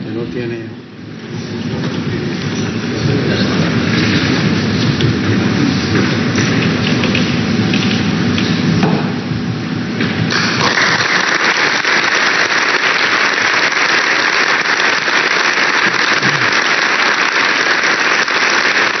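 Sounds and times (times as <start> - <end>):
audience applauding: 10.3 - 19.0.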